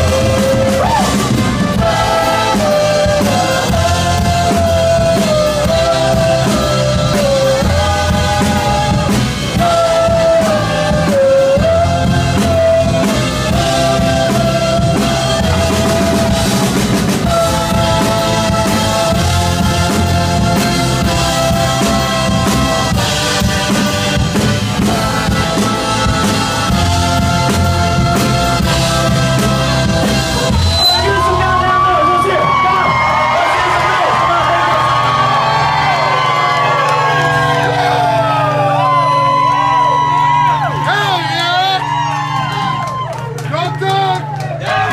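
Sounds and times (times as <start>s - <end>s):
accordion melody: 0.0s - 32.0s
trumpet melody: 0.0s - 38.7s
drum kit: 0.0s - 44.9s.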